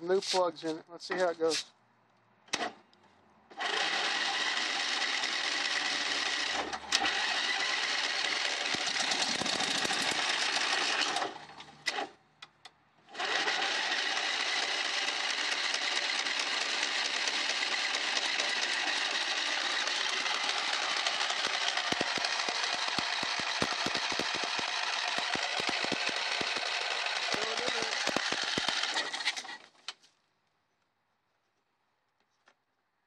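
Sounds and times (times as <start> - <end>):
electric starter cranking engine: 3.5 - 12.2, 13.1 - 29.9.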